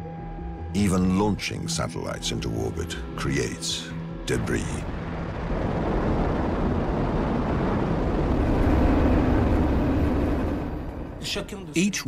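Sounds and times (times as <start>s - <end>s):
rocket engines rumbling: 3.7s - 11.8s.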